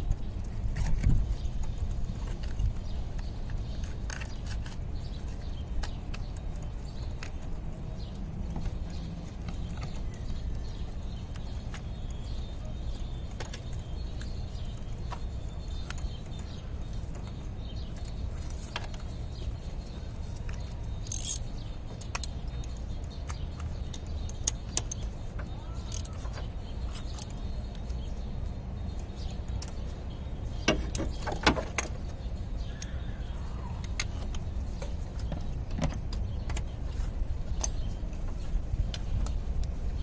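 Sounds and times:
metal tools clinking: 21.0s - 21.6s.

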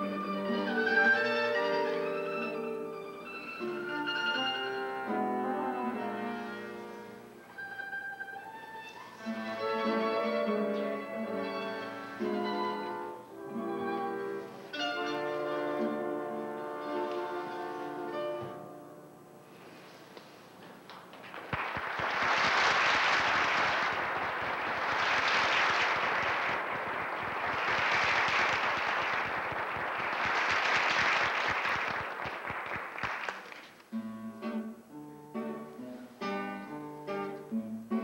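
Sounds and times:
acoustic ensemble with guitar: 0.0s - 18.6s, 33.7s - 38.0s
audience applauding: 20.9s - 33.9s.

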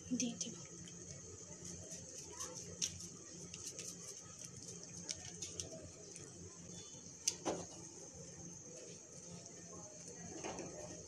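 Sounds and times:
sachet shaken ticks and rustles: 1.6s - 5.8s.

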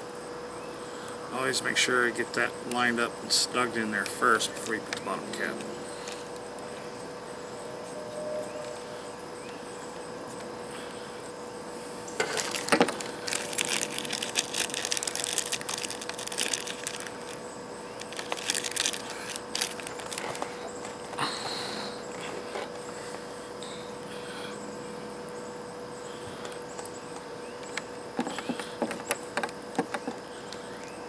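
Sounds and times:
faint steady hum: 0.0s - 31.0s
plastic bag crinkling: 12.2s - 21.1s.

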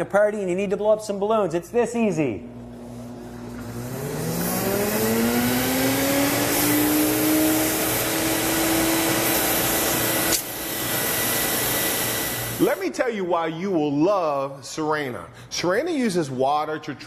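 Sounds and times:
vacuum motor whine: 2.5s - 12.8s
air rushing through hose: 2.8s - 13.0s.

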